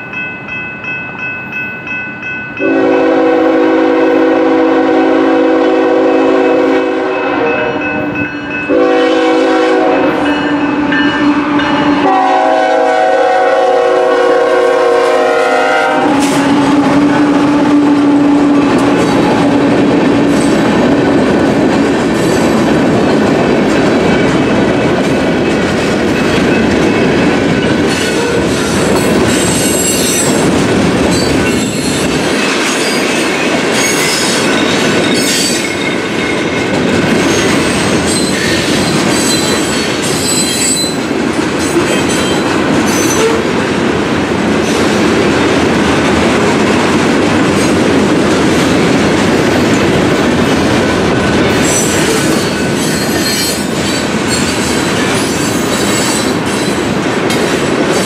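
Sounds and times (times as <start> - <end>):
train wheels rumbling and clattering: 2.5 - 58.0
locomotive horn: 2.6 - 19.8, 43.0 - 43.6.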